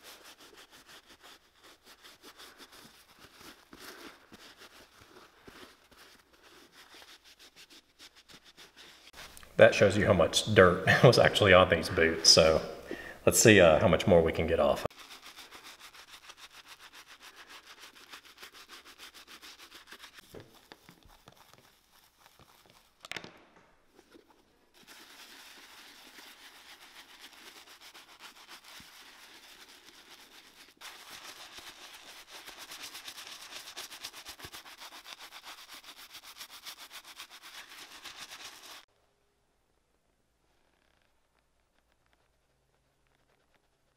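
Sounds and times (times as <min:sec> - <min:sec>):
brush scrubbing leather boot: 0:00.0 - 0:10.0, 0:14.9 - 0:23.0, 0:23.9 - 0:38.9.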